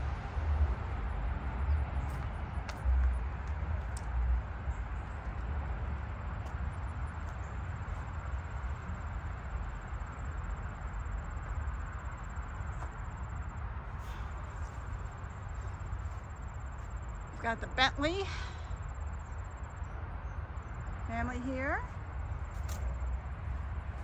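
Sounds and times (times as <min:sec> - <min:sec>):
outdoor low rumble with hiss: 0:00.0 - 0:24.0.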